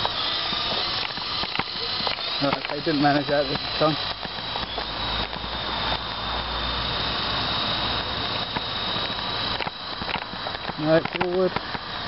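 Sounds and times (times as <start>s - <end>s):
remote-control helicopter whining: 0.0s - 12.0s.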